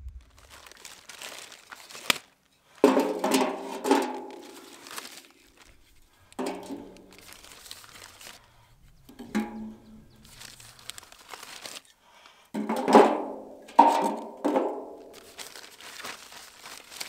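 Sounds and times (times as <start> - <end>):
plastic bag rustling: 0.0 - 12.0, 12.6 - 17.0
log clanging into steel drum: 2.9 - 4.6, 6.4 - 7.2, 9.0 - 10.2, 12.6 - 15.0.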